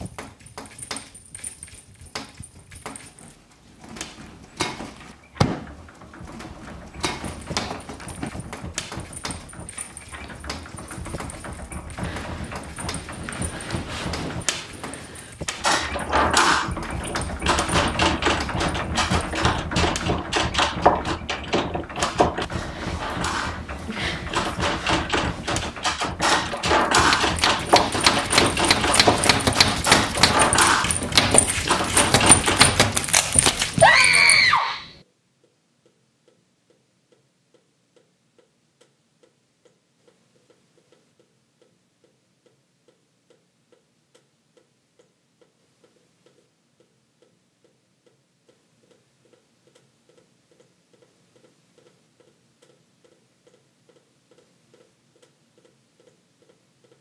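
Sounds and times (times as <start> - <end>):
chaotic clatter of knocks and bangs: 0.0 - 34.3.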